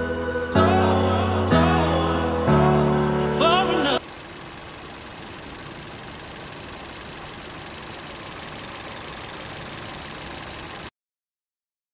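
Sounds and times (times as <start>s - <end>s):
car engine idling: 3.8s - 10.9s.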